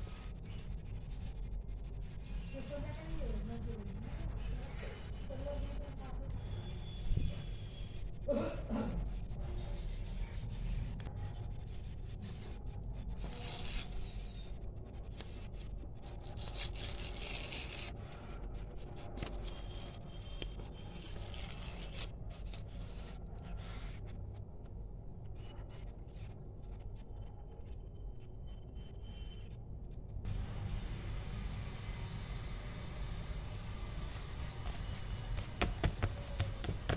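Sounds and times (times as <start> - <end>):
paper tearing: 13.2 - 14.2, 16.2 - 18.0, 20.7 - 23.0
steady low hum: 14.2 - 36.9
paper crackling and rustling: 34.1 - 36.9.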